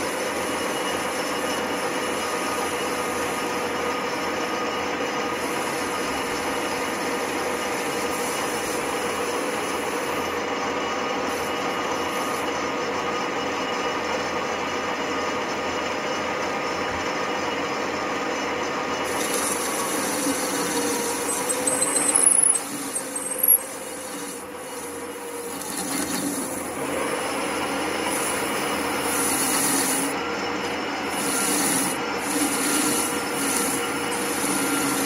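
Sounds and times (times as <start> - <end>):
lathe tool cutting metal: 0.0 - 35.0
metal lathe motor hum: 0.0 - 35.0
sharp metal scrapes: 19.1 - 26.7, 27.4 - 30.2, 31.1 - 35.0.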